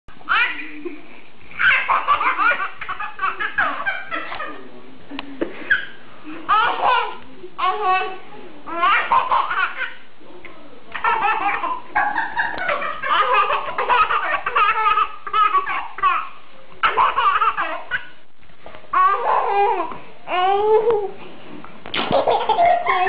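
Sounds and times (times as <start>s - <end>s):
child giggling: 22.1s - 23.0s.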